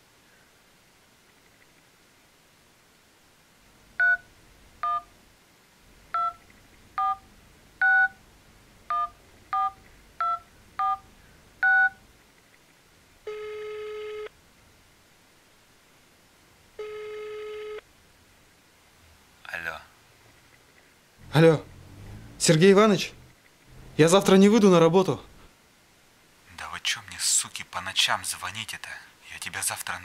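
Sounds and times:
touch-tone keypad beeps: 0:06.2 - 0:06.4, 0:07.0 - 0:07.2, 0:08.9 - 0:11.0, 0:11.6 - 0:12.0
phone ringback tones: 0:07.0 - 0:07.2, 0:08.9 - 0:11.0, 0:13.3 - 0:14.3, 0:16.8 - 0:17.8.

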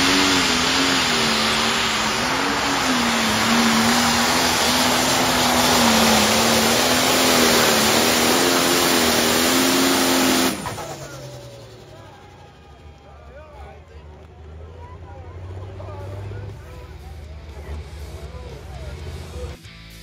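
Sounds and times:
heavy rushing exhaust: 0:00.0 - 0:13.8
tractor engine at full load: 0:00.0 - 0:19.6.

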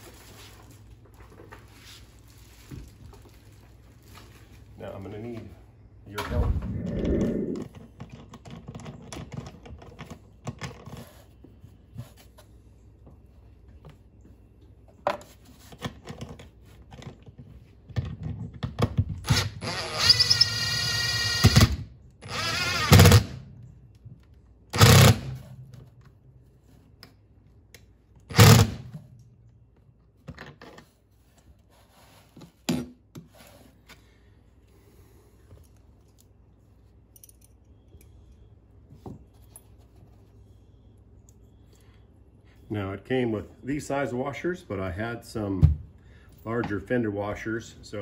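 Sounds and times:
impact driver whining: 0:19.2 - 0:23.4, 0:24.8 - 0:25.4, 0:28.3 - 0:28.9
nuts and washers clinking: 0:37.0 - 0:38.2.

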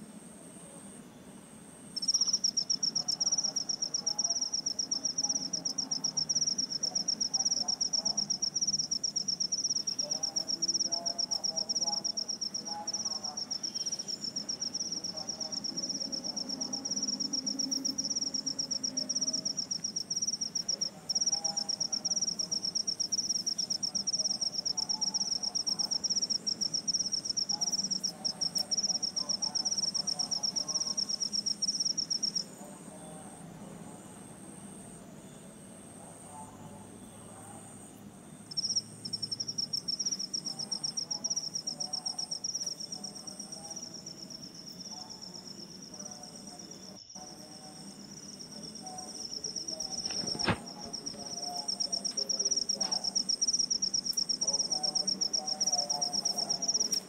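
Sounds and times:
insect trilling: 0:02.0 - 0:32.5, 0:38.5 - 0:45.8, 0:46.4 - 0:57.0
faint lower chirps: 0:13.4 - 0:15.1.

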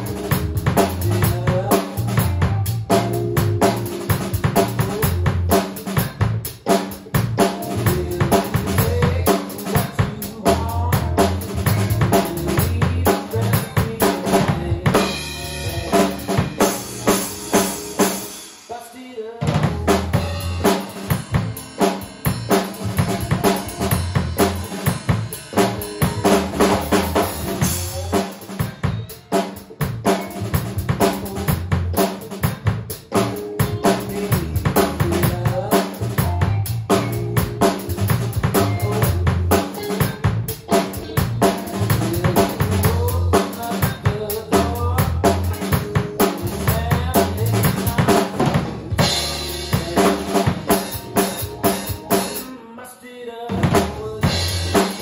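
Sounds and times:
drum kit playing blues groove: 0:00.0 - 0:52.6, 0:53.5 - 0:55.0
bass and guitar band track: 0:00.0 - 0:55.0.

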